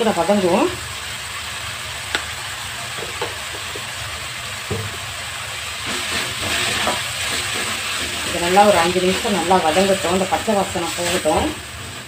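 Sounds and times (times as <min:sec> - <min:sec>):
vegetables sizzling in oil: 0:00.0 - 0:12.0.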